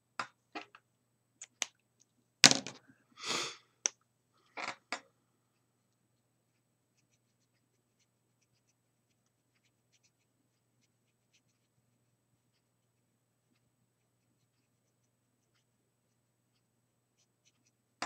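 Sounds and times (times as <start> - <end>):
faint steady hum: 0.0 - 18.0
marker scratching on paper: 6.9 - 15.7, 16.5 - 17.8.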